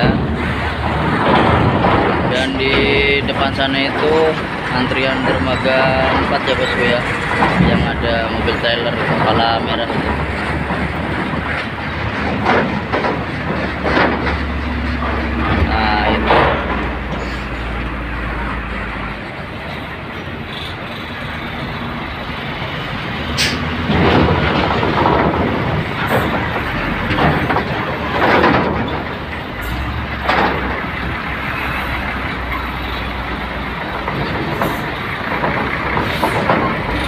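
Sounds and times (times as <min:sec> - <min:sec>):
diesel truck driving past: 0:00.0 - 0:37.0
truck body rattling and clanking: 0:00.0 - 0:37.0.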